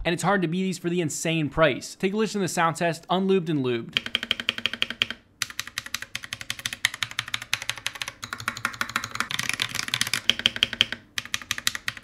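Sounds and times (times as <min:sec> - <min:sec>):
fast typing on mechanical keyboard: 0:04.0 - 0:12.0.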